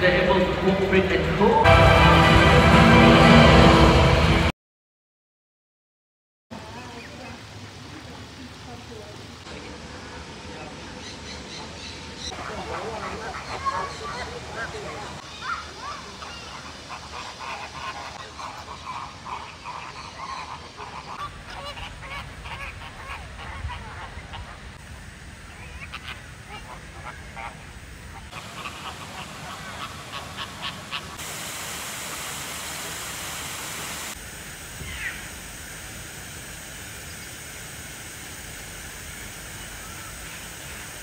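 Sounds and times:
steady hiss: 0:07.1 - 0:41.0
flamingos honking: 0:10.2 - 0:41.0.

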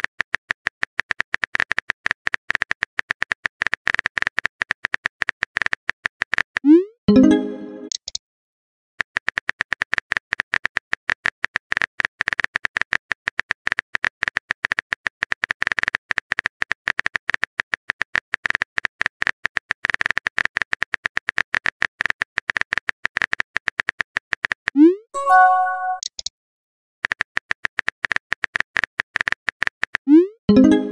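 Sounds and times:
message chime: 0:07.1 - 0:07.9, 0:25.2 - 0:26.1, 0:30.5 - 0:30.9.

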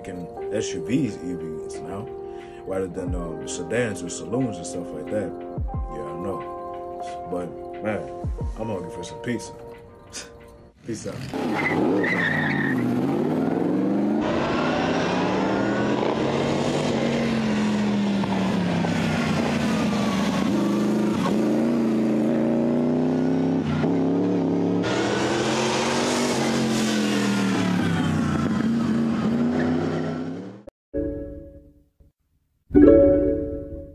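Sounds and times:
racing car engine revving: 0:11.2 - 0:30.7.

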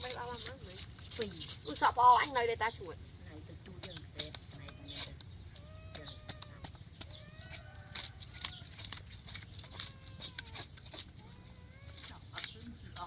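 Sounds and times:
knife scraping fish scales: 0:00.0 - 0:02.3, 0:07.4 - 0:11.2
farm animals calling: 0:00.0 - 0:13.0.

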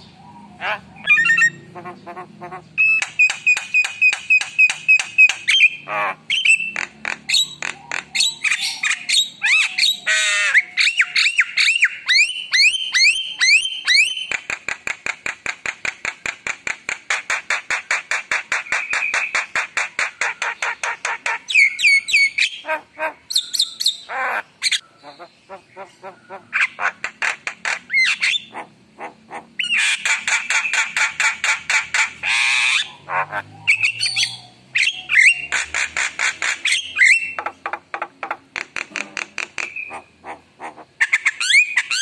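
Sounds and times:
bird singing varied song: 0:00.0 - 0:16.8, 0:17.8 - 0:42.0.

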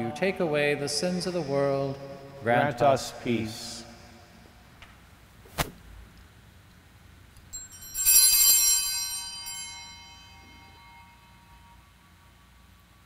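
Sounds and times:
altar bells ringing: 0:07.5 - 0:12.8.

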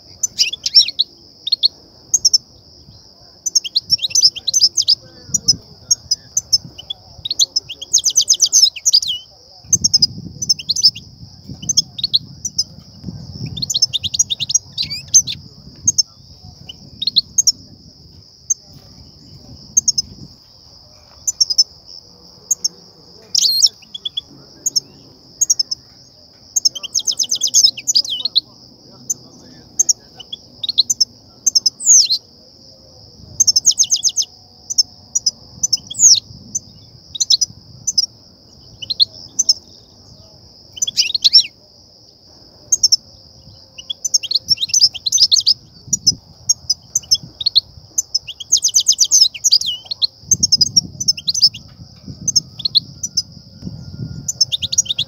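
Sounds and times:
goldfinch chirps and trills: 0:00.2 - 0:02.4, 0:03.4 - 0:12.8, 0:13.4 - 0:17.6, 0:22.5 - 0:25.8, 0:26.5 - 0:32.2, 0:33.4 - 0:38.1, 0:40.7 - 0:41.5, 0:42.7 - 0:53.3, 0:54.2 - 0:55.0.

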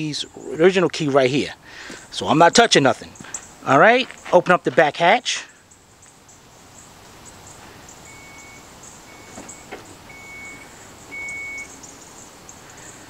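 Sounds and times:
short warning beeps: 0:08.1 - 0:11.8
power liftgate opening: 0:09.1 - 0:11.7.

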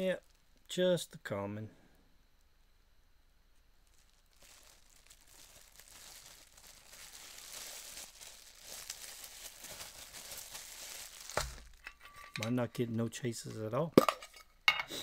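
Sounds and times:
plastic packaging crinkling: 0:03.8 - 0:12.8.

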